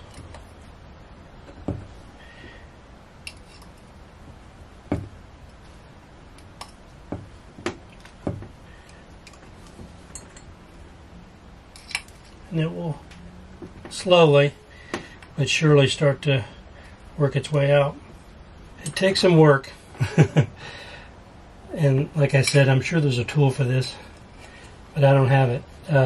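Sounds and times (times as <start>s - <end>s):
hand tool metal clicks and knocks: 3.2s - 3.8s, 6.4s - 10.5s, 11.7s - 12.2s.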